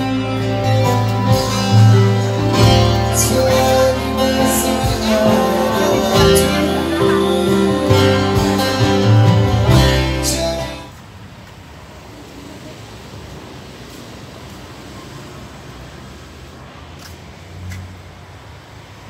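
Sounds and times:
live acoustic guitar music: 0:00.0 - 0:10.9
person singing: 0:00.0 - 0:10.9.

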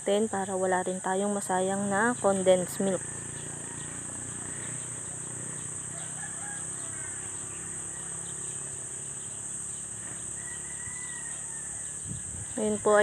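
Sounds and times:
insect chorus: 0:00.0 - 0:13.0
faint chicken calls: 0:03.0 - 0:12.8.

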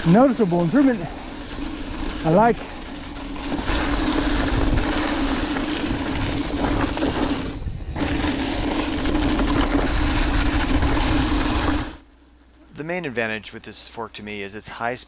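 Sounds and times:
bike tyres on gravel trail: 0:00.0 - 0:12.0
wind rushing on camera: 0:00.0 - 0:12.0
steady buzz: 0:00.0 - 0:14.5.

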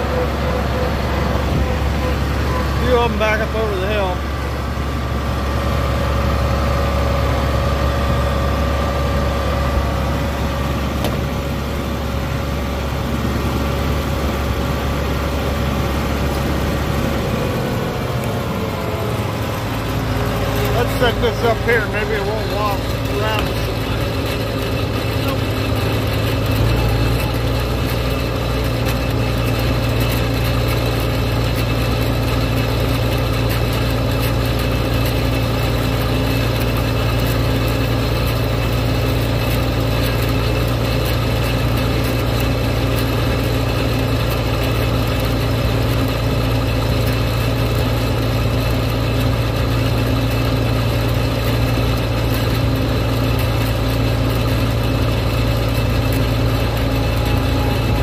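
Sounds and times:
tractor engine droning: 0:00.0 - 0:58.0.

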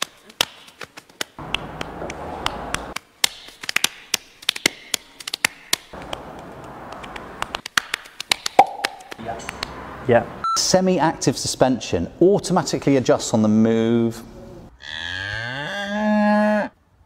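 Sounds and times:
hand taps and slaps: 0:00.0 - 0:06.2, 0:06.9 - 0:09.7.

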